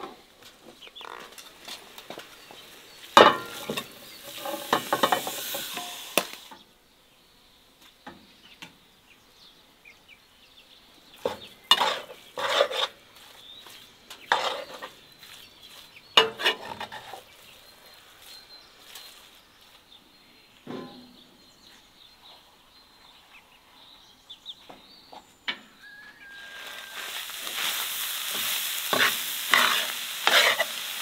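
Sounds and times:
meat sizzling in skillet: 1.9s - 6.6s, 11.2s - 17.2s, 25.9s - 31.0s
metal spoon scraping pan: 3.2s - 6.3s, 11.3s - 13.0s, 14.2s - 15.0s, 16.2s - 17.2s, 28.3s - 30.8s.

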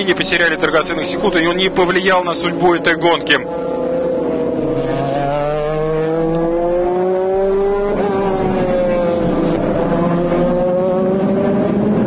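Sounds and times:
race car engines at full throttle: 0.0s - 12.0s.

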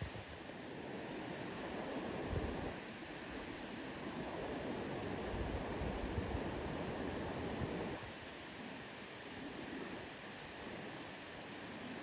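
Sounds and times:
wind gusts rumbling on microphone: 0.0s - 8.2s
steady high-pitched hiss: 0.0s - 12.0s
wind through trees: 0.0s - 12.0s.

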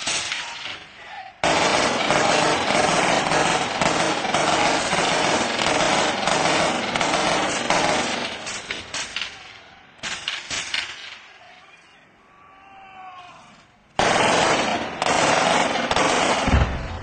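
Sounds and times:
gunshots: 0.0s - 11.4s, 14.0s - 17.0s
rapid gunfire: 1.4s - 9.4s, 14.0s - 17.0s
heavy low thump: 16.5s - 17.0s.

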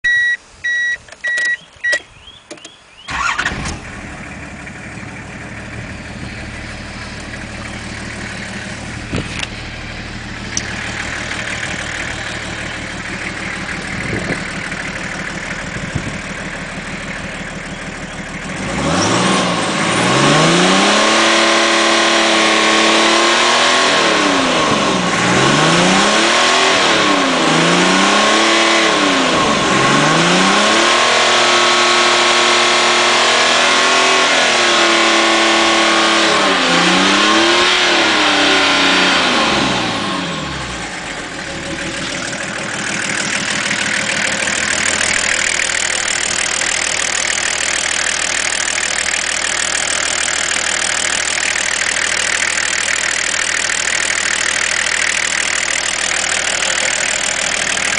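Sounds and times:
short beeps: 0.0s - 2.8s
diesel engine starting and idling: 0.1s - 57.9s
engine revving: 3.1s - 57.9s.

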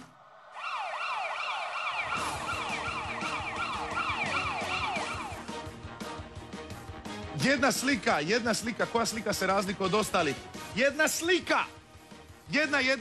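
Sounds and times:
siren-like falling wails: 0.0s - 5.5s.

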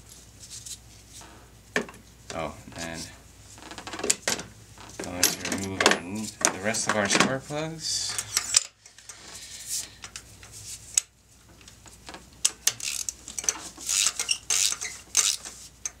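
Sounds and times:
metal tools clinking: 5.0s - 7.1s
ratchet clicking: 12.4s - 16.0s.

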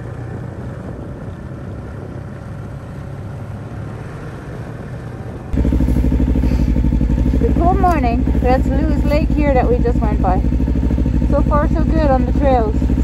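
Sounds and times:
snowmobile engine running: 5.3s - 13.0s.

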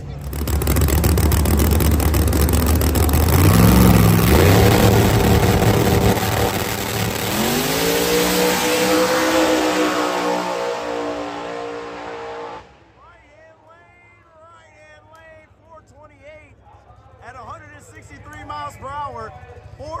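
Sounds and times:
race car engines at full throttle: 0.0s - 13.3s.

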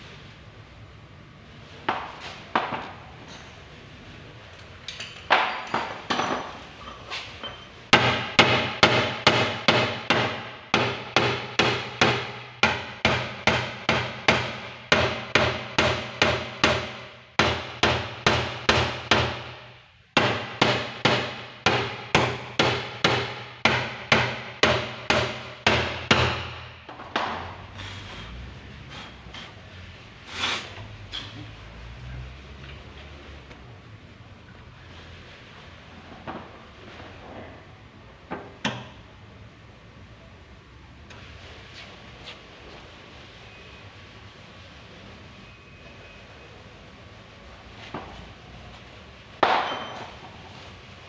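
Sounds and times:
hammer striking metal punch: 7.9s - 27.4s, 49.4s - 50.2s.

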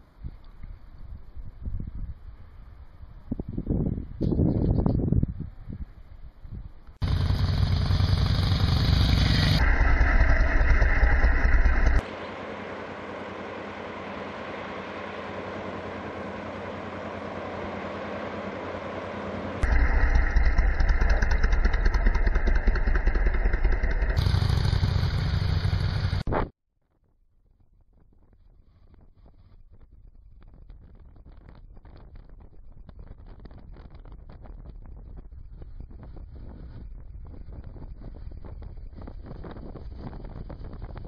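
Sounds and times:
wind buffeting the microphone: 0.2s - 6.9s, 28.0s - 41.0s
motorcycle engine: 7.0s - 26.3s.

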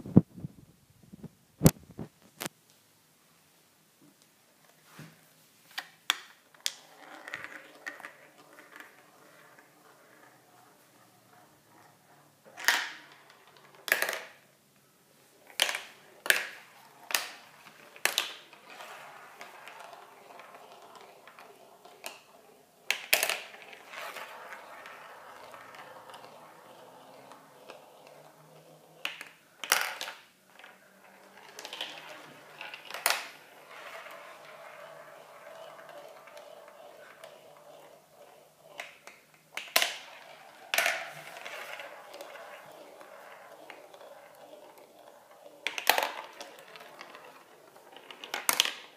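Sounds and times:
marbles rolling: 6.1s - 14.5s, 15.3s - 48.9s
marbles clacking on track: 12.5s - 14.4s, 15.5s - 48.9s.

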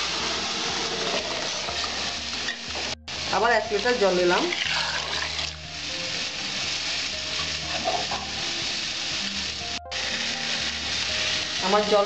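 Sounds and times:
sizzling hiss: 0.0s - 12.0s
water poured into hot pot: 4.4s - 5.6s.

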